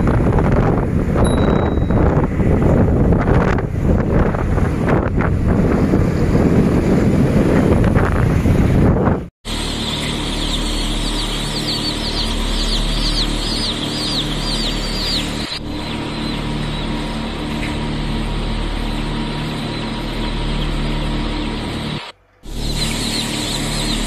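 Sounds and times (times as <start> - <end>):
motorbike and traffic rumble: 0.0 - 9.3
wind buffeting microphone: 0.0 - 9.3
steady low hum: 0.0 - 24.0
baby chicks peeping: 9.5 - 24.0.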